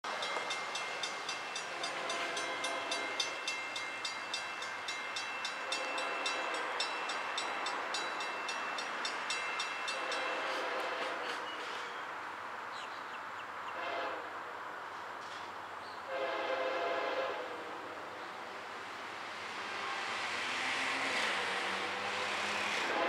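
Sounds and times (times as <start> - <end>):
crossing bell ringing: 0.1 - 12.1.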